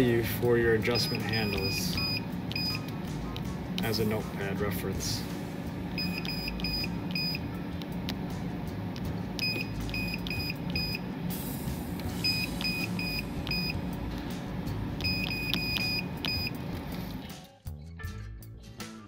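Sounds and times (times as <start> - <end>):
touchscreen key press beeps: 0.9 - 2.9, 6.0 - 7.4, 9.4 - 11.0, 12.2 - 13.8, 15.0 - 16.6.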